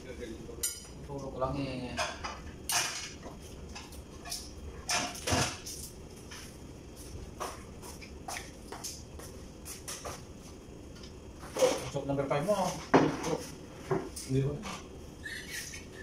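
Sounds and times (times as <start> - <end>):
plates and utensils clinking: 1.9 - 3.2, 3.8 - 5.7.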